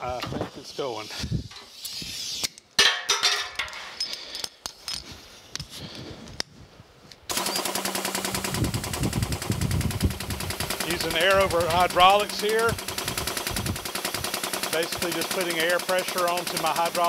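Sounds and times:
air pump pulsing: 7.3s - 17.0s.

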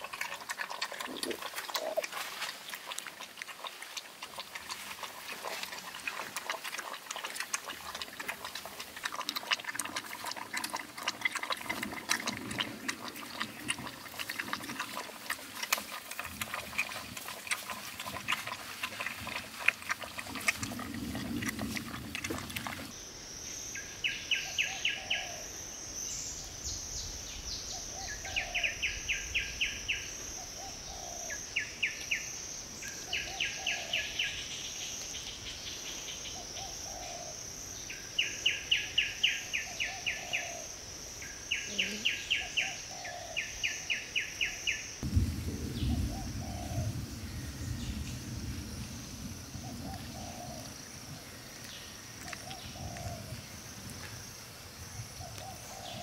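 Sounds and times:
low rumbling noise: 45.0s - 51.3s.

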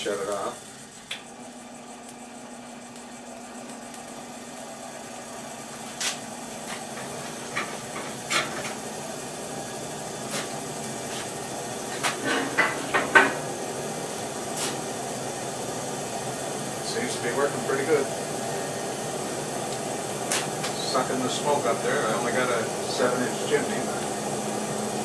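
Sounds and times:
forge fire blower rushing: 0.0s - 25.0s
fire popping and clicking: 2.9s - 4.1s.

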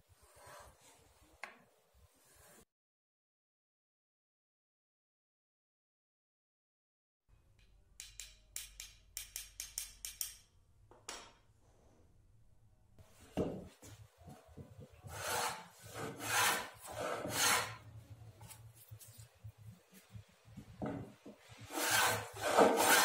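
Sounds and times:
plane shaving a board: 15.1s - 17.8s, 21.6s - 23.0s.

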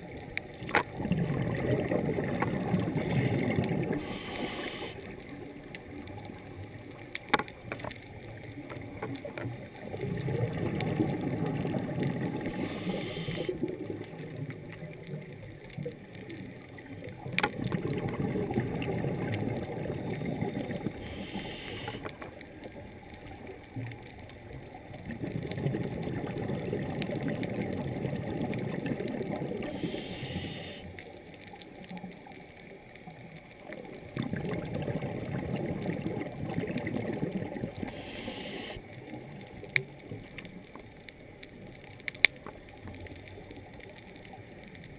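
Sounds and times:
bubbling rumble on exhale: 0.0s - 6.9s, 8.1s - 31.2s, 33.0s - 40.8s
regulator hiss on inhale: 3.0s - 5.3s, 12.4s - 13.7s, 20.8s - 22.3s, 29.6s - 31.2s, 37.7s - 39.0s.

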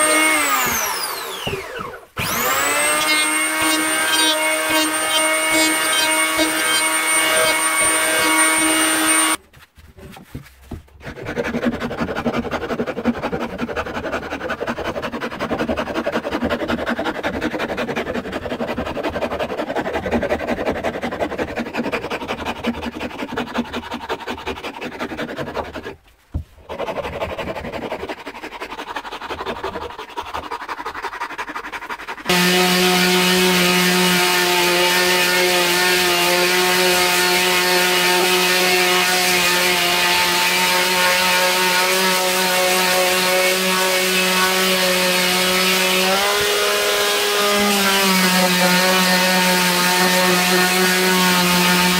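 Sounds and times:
electric planer motor: 0.0s - 9.4s, 32.3s - 51.9s
file rasping on wood: 0.0s - 9.4s, 10.1s - 51.9s.

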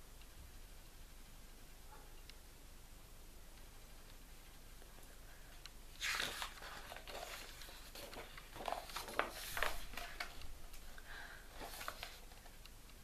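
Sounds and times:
book pages turning: 6.0s - 10.9s, 11.5s - 12.6s.

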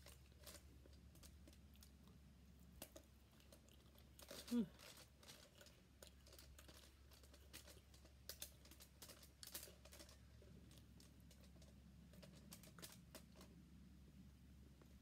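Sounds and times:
chewing: 0.0s - 13.7s
steady low hum: 0.0s - 15.0s
foil crinkling: 4.2s - 10.2s.

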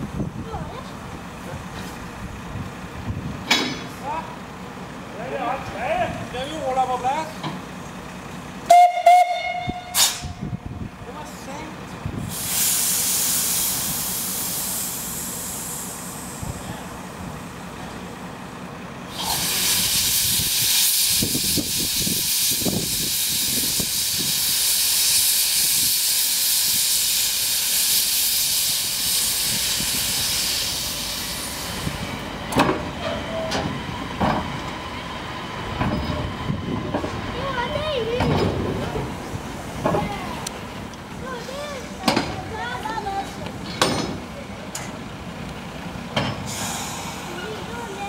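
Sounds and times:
steam locomotive hissing: 8.5s - 10.5s, 12.1s - 48.0s.

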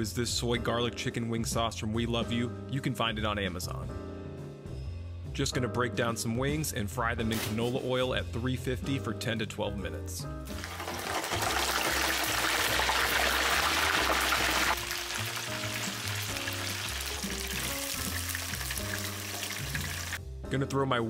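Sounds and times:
background music: 0.0s - 21.0s
chicken frying in oil sizzling: 10.5s - 20.2s.

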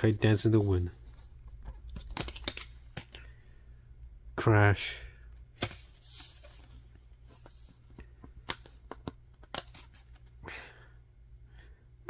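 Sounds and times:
cardboard page rustling: 5.6s - 10.3s.

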